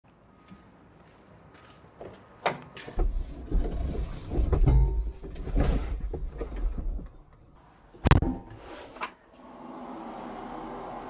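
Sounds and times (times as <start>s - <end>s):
clunks and creaks of climbing: 2.0s - 9.2s.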